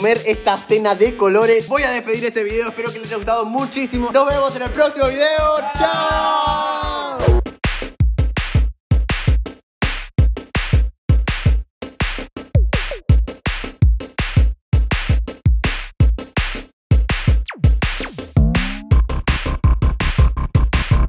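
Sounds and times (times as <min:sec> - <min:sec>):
background music: 0:00.0 - 0:08.0, 0:17.5 - 0:19.6.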